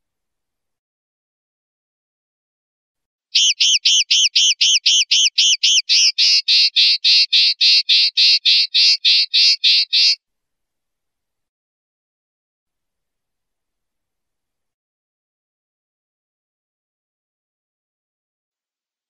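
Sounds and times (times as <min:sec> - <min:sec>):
linnet singing: 0:03.4 - 0:10.2.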